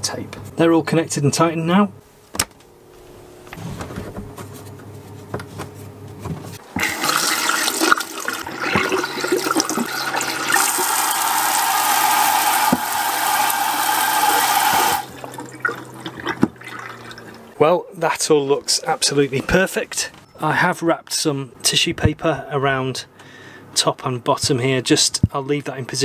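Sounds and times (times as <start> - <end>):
tap water rushing into sink: 6.7 - 17.4.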